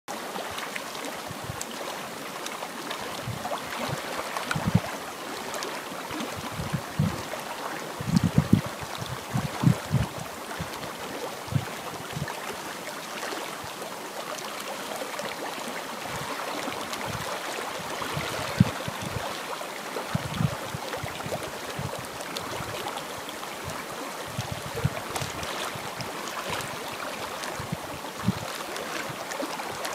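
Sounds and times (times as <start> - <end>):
water lapping: 0.1 - 29.9
wind buffeting microphone: 3.1 - 5.0, 6.2 - 12.4, 17.0 - 19.4, 20.1 - 22.9, 23.6 - 26.8, 27.5 - 28.5.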